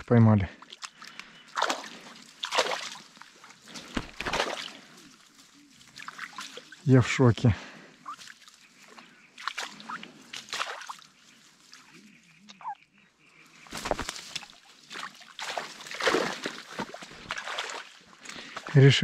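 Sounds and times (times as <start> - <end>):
water splashing and sloshing: 0.0 - 12.6, 13.5 - 19.0
reed stems and mesh rustling: 0.6 - 19.0
fish thrashing in a net: 1.6 - 6.8, 9.4 - 11.2, 13.7 - 18.0.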